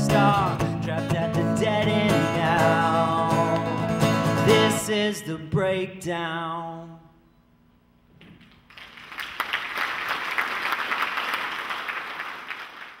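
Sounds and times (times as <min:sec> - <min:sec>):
audience applause: 0:08.7 - 0:13.0.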